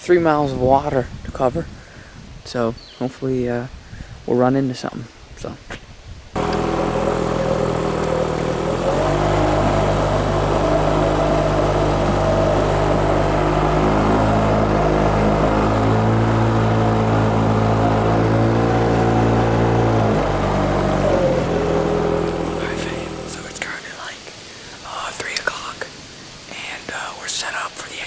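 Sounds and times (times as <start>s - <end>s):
outboard motor running: 6.4s - 23.8s.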